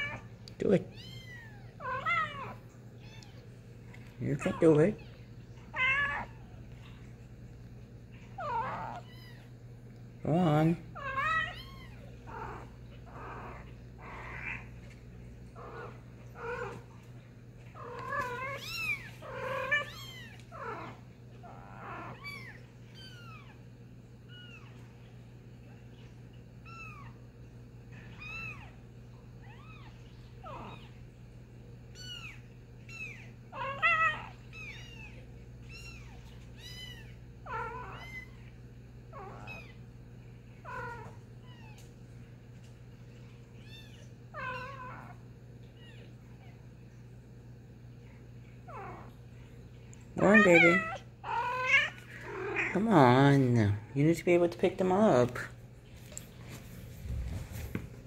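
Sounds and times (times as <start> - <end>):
kittens mewing: 0.0 - 3.5, 4.2 - 7.3, 8.0 - 9.6, 10.3 - 27.3, 27.9 - 31.1, 31.9 - 39.9, 40.5 - 41.9, 43.5 - 46.6, 48.6 - 49.2, 50.2 - 52.9
steady low hum: 0.0 - 58.0.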